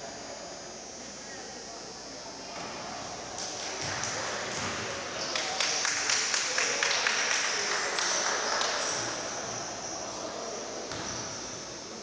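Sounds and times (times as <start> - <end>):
echoing hubbub: 0.0 - 12.0
sneakers squeaking on court: 10.9 - 11.6.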